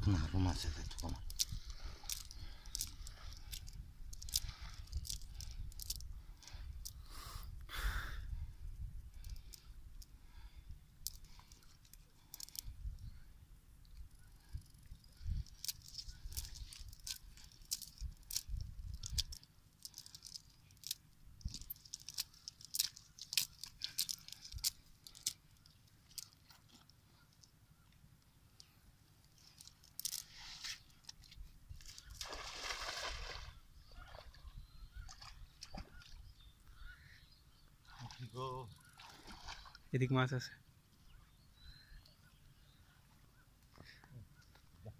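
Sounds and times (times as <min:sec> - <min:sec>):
net sinkers clicking and clinking: 0:01.0 - 0:06.0, 0:15.4 - 0:25.4, 0:29.4 - 0:30.3
mud squelching: 0:31.8 - 0:36.2, 0:37.8 - 0:39.9.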